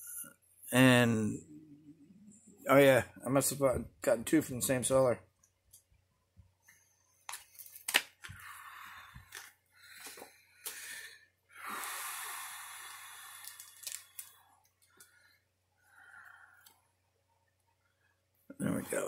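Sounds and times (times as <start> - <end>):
packaging clicks: 7.3 - 8.4, 13.4 - 15.1
packaging crinkling and rustling: 7.3 - 8.4, 13.4 - 15.0
packaging tearing: 7.6 - 8.1, 13.4 - 14.4.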